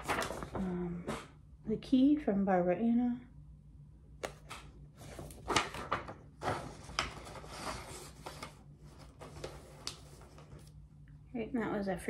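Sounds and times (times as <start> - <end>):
paper rustling and crinkling: 0.0 - 0.9, 4.2 - 10.8.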